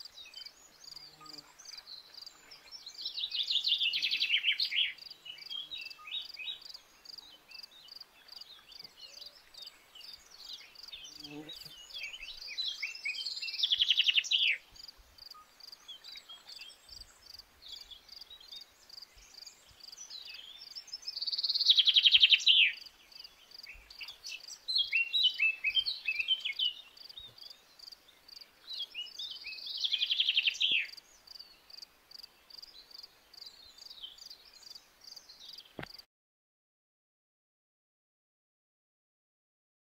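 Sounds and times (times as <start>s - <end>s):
crickets chirping: 11.7s - 22.2s, 22.8s - 36.0s.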